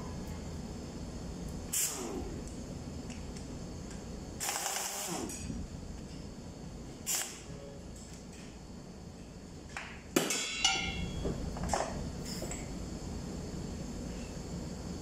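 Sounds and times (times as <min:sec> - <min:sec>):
air impact wrench bursts: 0:01.7 - 0:02.2, 0:04.4 - 0:05.4, 0:07.0 - 0:07.4
metal clanks: 0:10.2 - 0:11.3.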